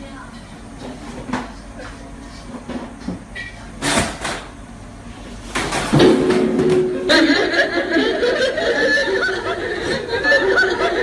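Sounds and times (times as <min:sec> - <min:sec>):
laughter: 0:07.0 - 0:11.0.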